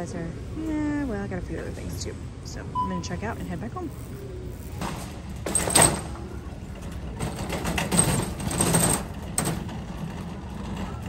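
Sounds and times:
shopping cart rattling over pavement: 3.0s - 11.0s.

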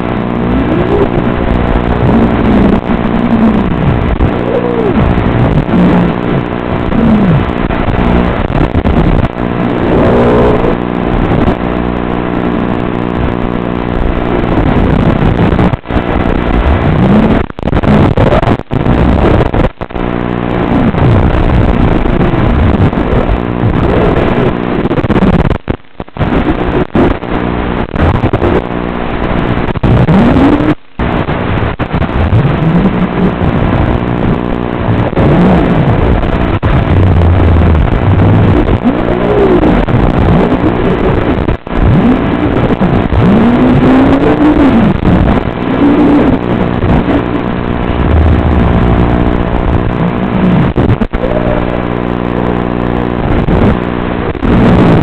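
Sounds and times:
drone motors whining: 0.0s - 7.5s, 9.6s - 11.5s, 45.5s - 52.7s.

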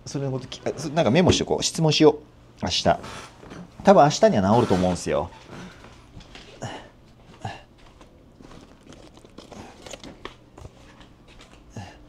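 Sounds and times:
low room hum: 0.0s - 12.0s
soft footsteps: 5.4s - 9.4s, 10.0s - 11.7s.

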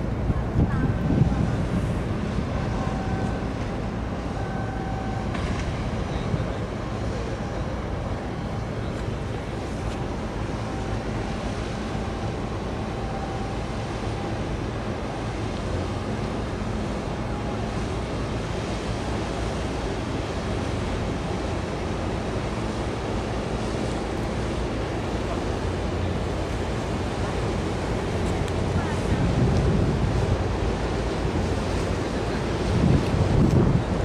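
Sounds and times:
wind noise on microphone: 0.0s - 3.6s, 28.3s - 34.0s
ship engine drone: 0.0s - 34.0s
water rushing: 0.0s - 34.0s.

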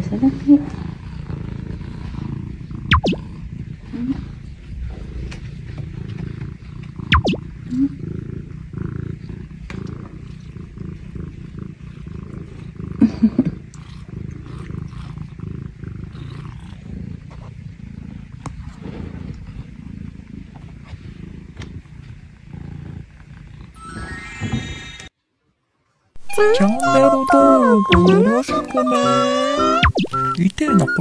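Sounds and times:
cat purring: 0.0s - 24.8s, 26.2s - 31.0s.

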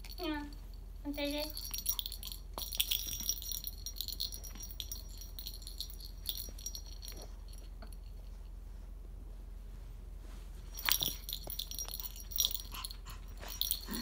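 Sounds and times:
small metal bell jingling: 0.0s - 8.4s, 10.7s - 14.0s.

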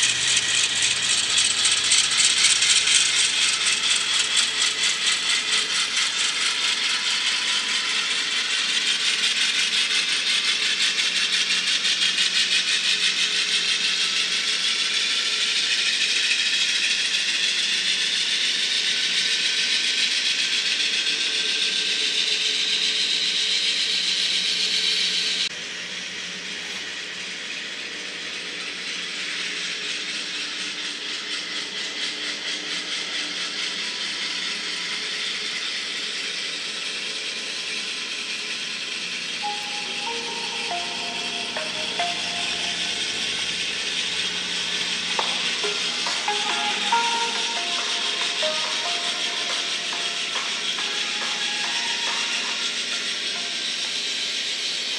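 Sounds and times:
model train gears rattling: 0.0s - 12.7s
model train motor whine: 0.0s - 54.9s.

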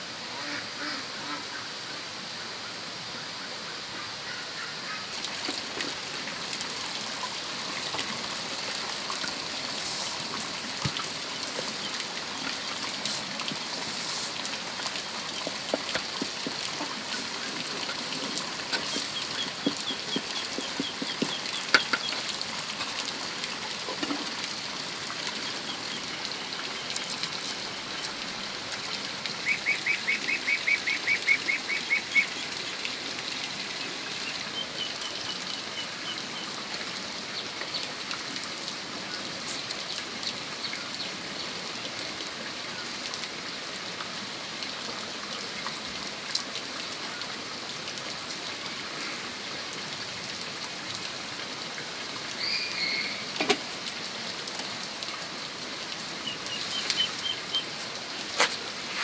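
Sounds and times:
steady high hiss: 9.3s - 15.4s
farmyard birds calling: 16.8s - 22.2s, 56.4s - 57.7s.

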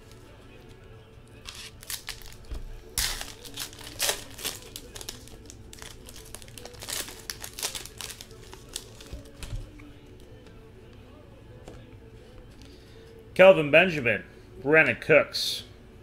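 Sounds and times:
card pack wrappers crinkling: 1.4s - 9.8s.

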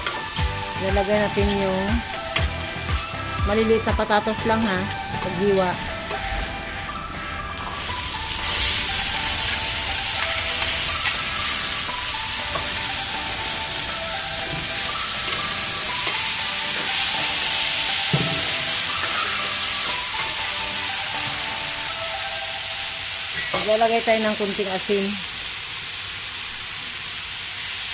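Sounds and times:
metal spatula stirring: 0.0s - 3.3s
potatoes sizzling in hot oil: 0.0s - 27.9s.

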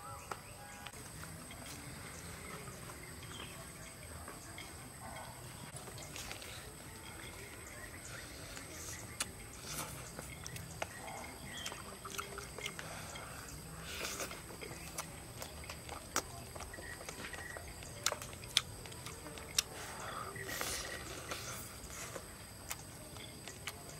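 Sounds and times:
mouth clicks and smacks: 8.6s - 12.9s, 13.5s - 19.8s
person chewing crispy chicken: 8.8s - 23.9s.

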